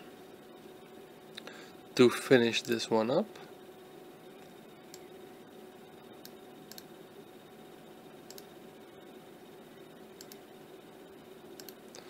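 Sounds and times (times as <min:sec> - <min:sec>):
faint hum and hiss: 0:00.0 - 0:12.0
computer mouse clicking: 0:06.2 - 0:06.9, 0:08.3 - 0:08.5, 0:10.2 - 0:10.4, 0:11.6 - 0:12.0.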